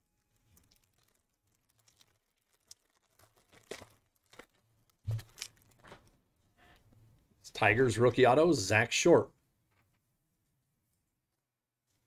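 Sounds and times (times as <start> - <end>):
foil wrapper crinkling and tearing: 0.0 - 6.2.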